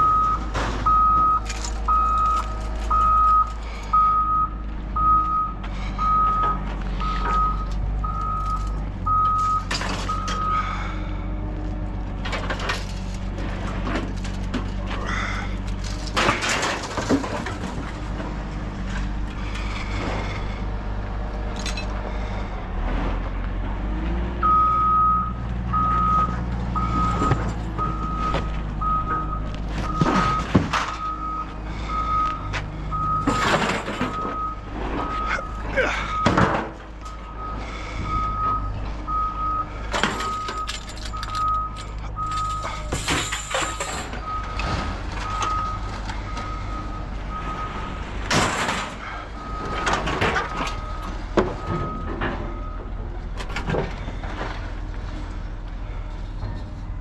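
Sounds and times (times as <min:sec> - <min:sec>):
vehicle backup alarm beeping: 0:00.0 - 0:11.1, 0:24.4 - 0:54.4
heavy vehicle engine running: 0:00.0 - 0:57.0.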